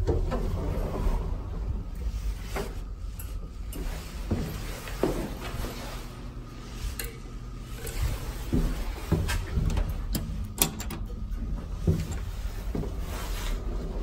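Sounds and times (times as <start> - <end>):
steady low hum: 0.0 - 14.0
elevator buttons clicking: 9.6 - 11.3.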